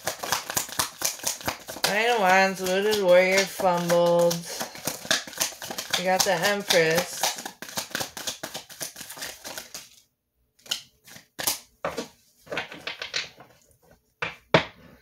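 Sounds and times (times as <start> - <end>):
cards snapping and tapping: 0.0 - 10.0, 10.6 - 13.3
rapid card clicks: 0.0 - 10.0.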